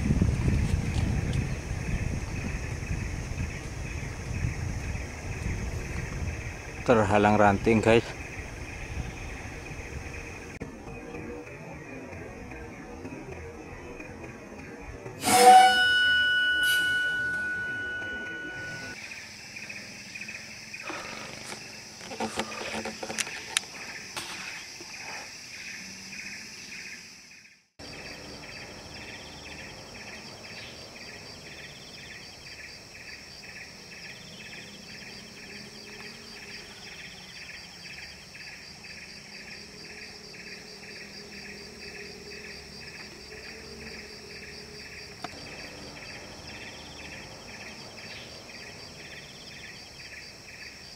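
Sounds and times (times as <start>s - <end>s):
high continuous insect buzz: 0.0s - 16.1s, 18.8s - 50.9s
insects chirping: 0.0s - 50.9s
music: 10.6s - 17.4s
short clicks and rustles: 21.2s - 24.9s.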